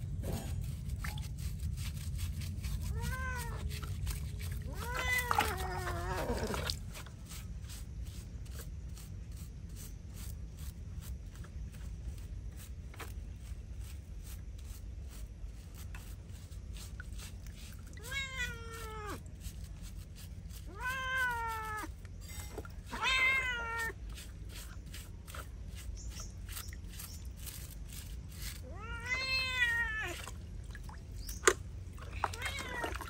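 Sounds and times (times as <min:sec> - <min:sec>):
cat meowing: 0:02.9 - 0:03.9, 0:04.6 - 0:06.6, 0:18.0 - 0:19.2, 0:20.7 - 0:21.9, 0:22.9 - 0:24.0, 0:28.6 - 0:30.3, 0:32.2 - 0:33.0.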